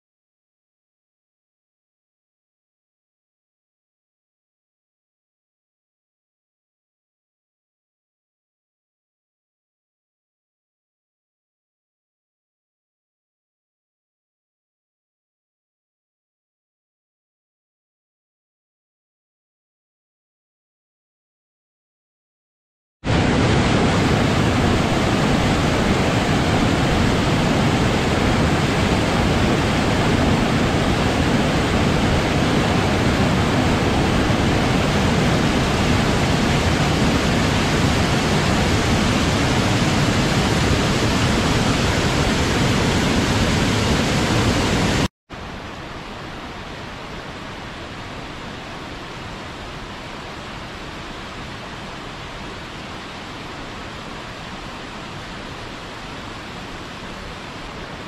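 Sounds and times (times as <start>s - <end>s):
waterfall rushing over boulders: 23.1s - 58.0s.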